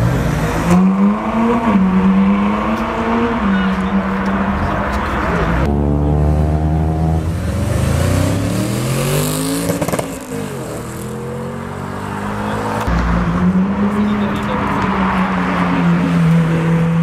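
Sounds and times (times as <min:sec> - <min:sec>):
car engine revving accelerating: 0:05.4 - 0:17.0.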